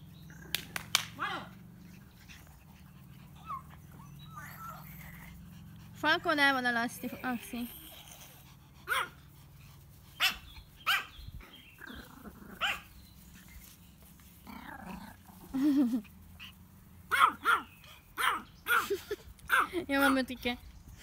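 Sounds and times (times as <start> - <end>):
small dog barking: 8.8 - 9.2, 10.2 - 11.2, 12.6 - 12.9, 17.1 - 19.7.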